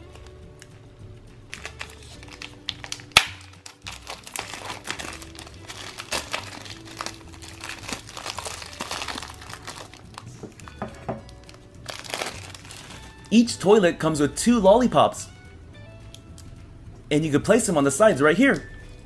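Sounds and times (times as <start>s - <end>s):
plastic wrapping crinkling: 1.5s - 13.4s
sharp plastic snap: 2.7s - 3.6s.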